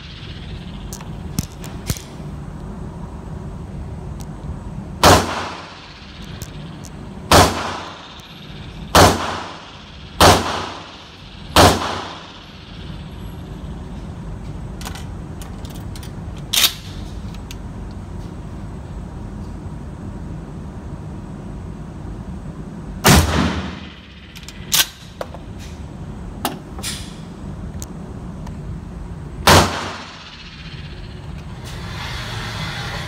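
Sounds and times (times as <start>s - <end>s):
shotgun blasts echoing indoors: 5.0s - 6.4s, 7.3s - 12.8s, 23.0s - 24.1s, 29.4s - 30.7s.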